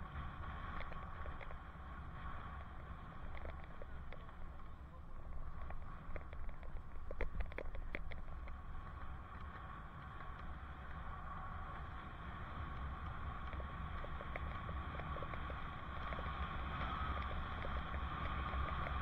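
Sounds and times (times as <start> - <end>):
road hum: 0.0 - 19.0
wind rumble on microphone: 0.0 - 19.0
light clicks and rattles: 2.3 - 8.6.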